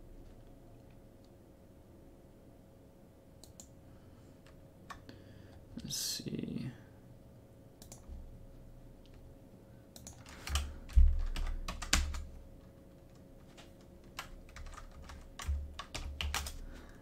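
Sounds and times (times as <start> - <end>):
computer keyboard typing: 7.8 - 8.1, 10.0 - 16.6.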